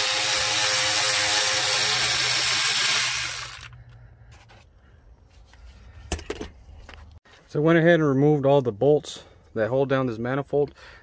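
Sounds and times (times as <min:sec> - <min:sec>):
electric ratchet motor whine: 0:00.0 - 0:03.8.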